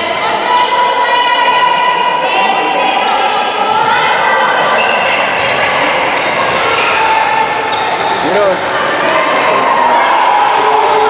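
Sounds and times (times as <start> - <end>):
players calling: 0.0 - 11.0.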